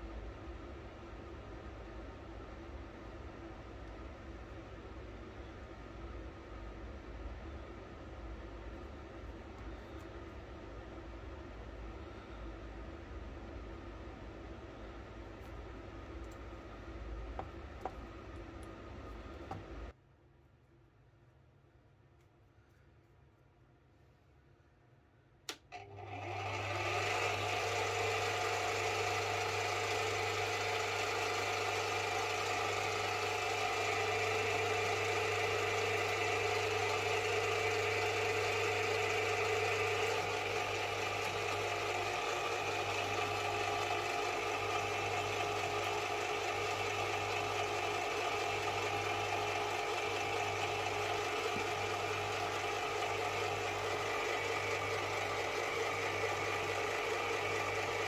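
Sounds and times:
metal lathe motor and gear hum: 25.8s - 58.0s.

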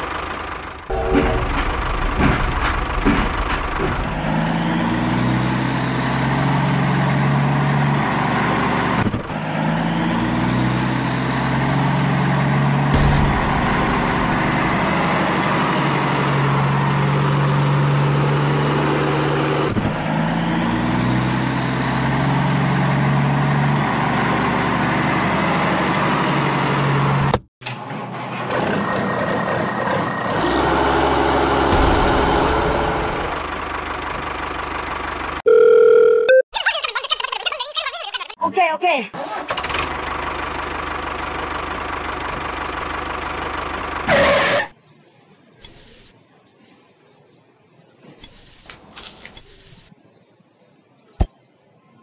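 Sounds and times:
tractor engine revving: 0.0s - 35.4s.

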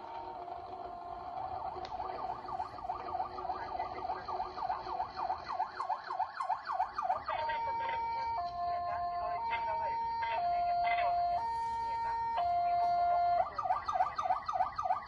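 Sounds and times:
emergency vehicle siren: 0.0s - 15.0s.

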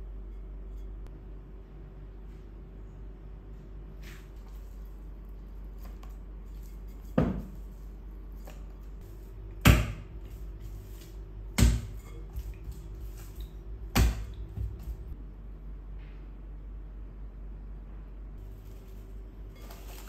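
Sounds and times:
dough slapping into bowl: 5.7s - 15.2s.

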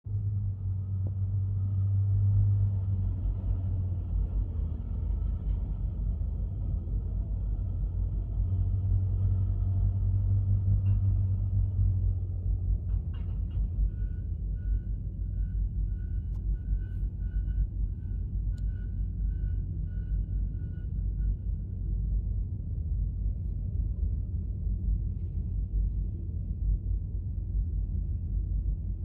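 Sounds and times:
diesel engine droning: 0.1s - 21.5s.

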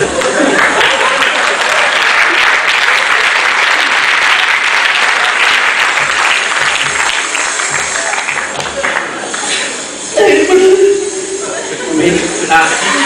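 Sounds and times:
audience applauding: 0.0s - 9.9s.

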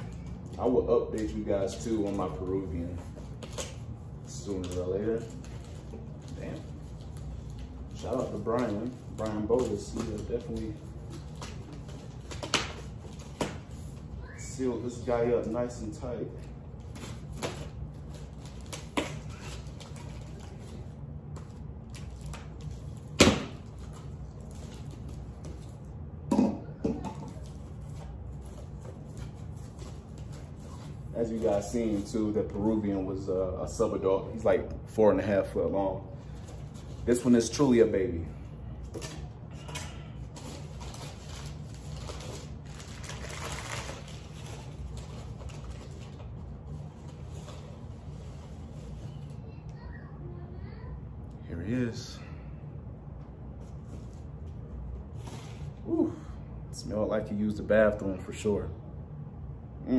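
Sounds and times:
packing material crinkling: 0.0s - 15.9s, 38.8s - 49.3s
steady low hum: 0.0s - 59.9s.

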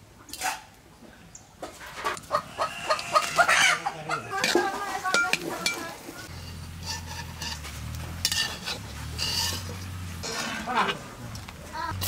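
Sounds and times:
utensil scraping cooking pan: 4.3s - 11.2s
light sizzling: 4.4s - 12.0s.

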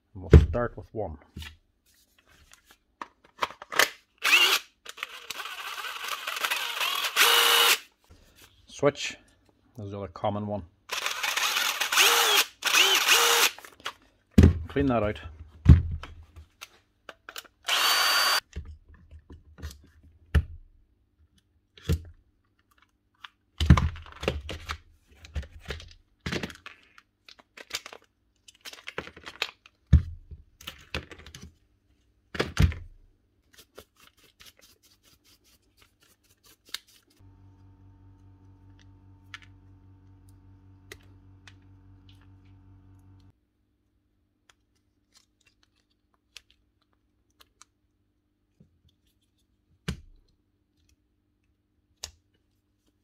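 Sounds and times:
low machine hum: 37.2s - 43.3s.

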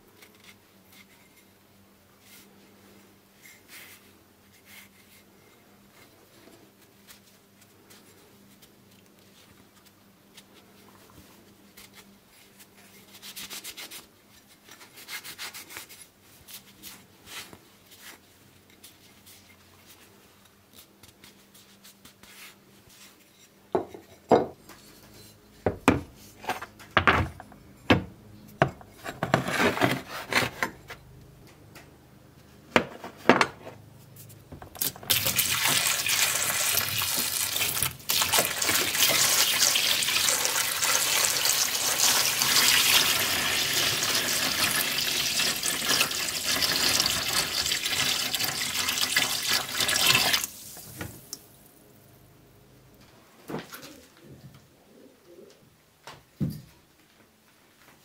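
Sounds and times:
faint rubbing of metal parts: 0.1s - 26.8s.

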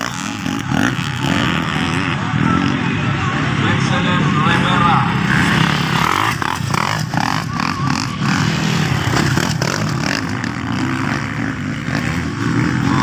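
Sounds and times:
dirt bike engines revving: 0.0s - 13.0s.

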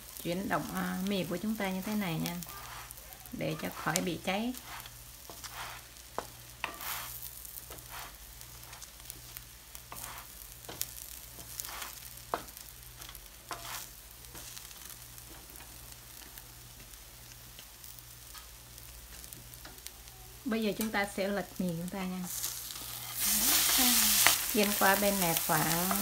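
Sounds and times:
noodles sizzling in a frying pan: 0.0s - 26.0s
spatula scraping and tapping pan: 3.6s - 15.8s.

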